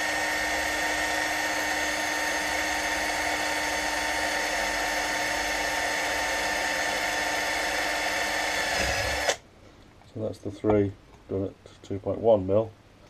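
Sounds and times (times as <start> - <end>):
cordless drill boring into metal: 0.0 - 9.4.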